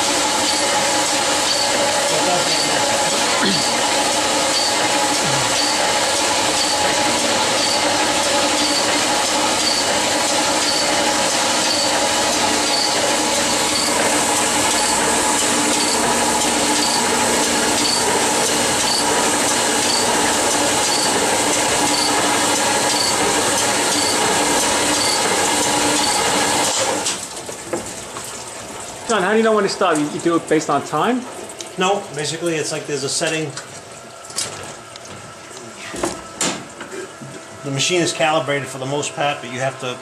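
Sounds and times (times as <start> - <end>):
machine hum: 0.0 - 27.3
honing machine grinding hiss: 1.4 - 6.9, 7.5 - 15.1, 15.7 - 16.1, 17.8 - 19.1, 22.9 - 23.2.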